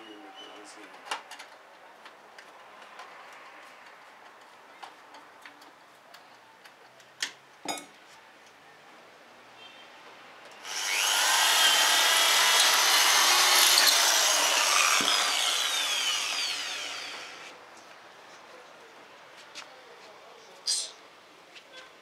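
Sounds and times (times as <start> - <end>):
electric drill grinding into metal: 10.6 - 17.5.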